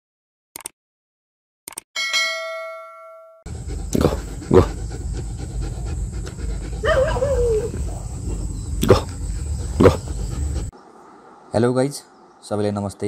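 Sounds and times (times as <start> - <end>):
sharp clicks: 0.6 - 0.8, 1.7 - 1.9
notification bell ding: 2.0 - 3.4
dog whining: 3.6 - 10.6.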